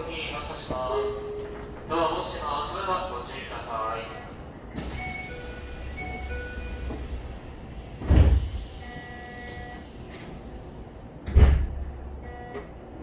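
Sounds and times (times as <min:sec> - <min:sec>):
train car hum: 0:00.0 - 0:13.0
train doors slamming shut: 0:07.9 - 0:10.4, 0:11.2 - 0:12.0.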